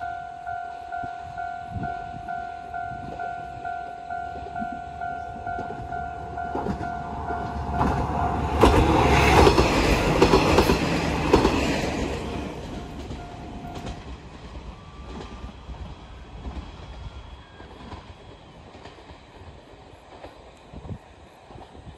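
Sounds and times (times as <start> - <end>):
level crossing alarm ringing: 0.0 - 9.5, 11.5 - 15.5
diesel railcar passing: 0.0 - 21.9
train wheels clacking over rail joints: 6.5 - 21.9.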